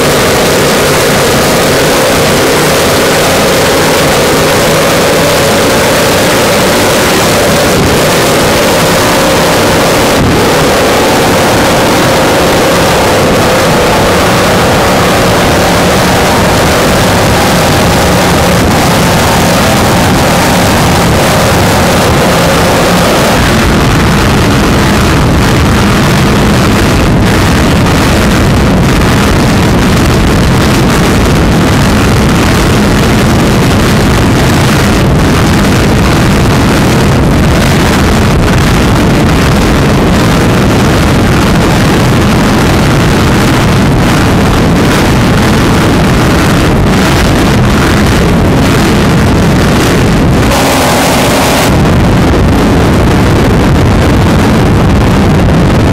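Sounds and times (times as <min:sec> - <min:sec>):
powerboat engines at high speed: 0:00.0 - 0:55.9
wind noise on microphone: 0:00.0 - 0:55.9
rushing water: 0:30.0 - 0:52.6, 0:53.2 - 0:55.9.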